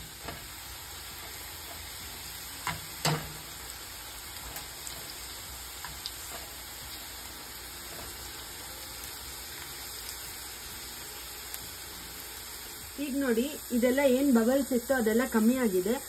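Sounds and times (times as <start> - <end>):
okra deep-frying in oil: 0.0 - 16.0.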